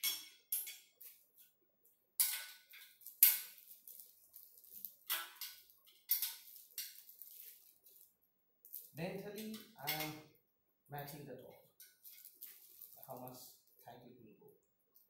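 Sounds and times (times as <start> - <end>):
spanner clinking on metal: 0.0 - 0.9, 2.2 - 3.6, 5.1 - 7.0, 9.2 - 10.2.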